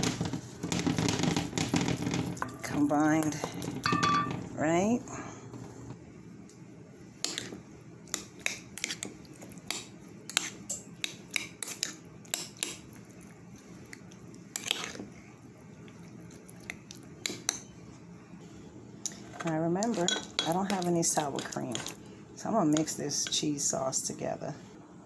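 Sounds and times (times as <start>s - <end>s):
metal spoon in ceramic bowl: 2.4s - 4.4s, 19.2s - 21.9s
spoon clinking in a pot: 3.8s - 4.4s.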